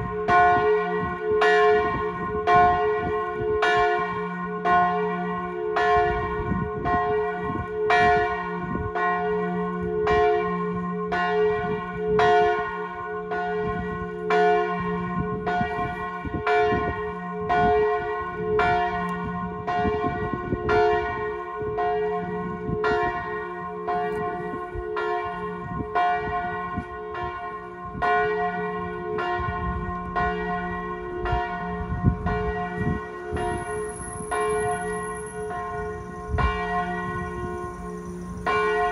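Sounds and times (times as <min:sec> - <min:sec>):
large church bell pealing: 0:00.0 - 0:38.9
small bell tolling: 0:33.3 - 0:38.9.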